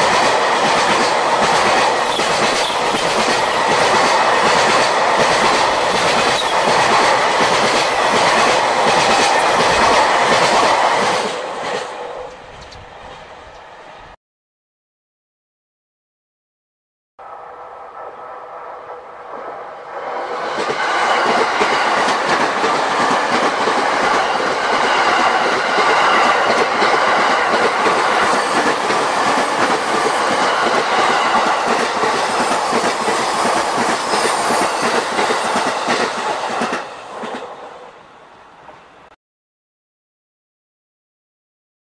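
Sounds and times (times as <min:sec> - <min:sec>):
wheels clacking over rail joints: 0:00.0 - 0:13.6
electric train passing: 0:00.0 - 0:14.2, 0:17.2 - 0:39.1.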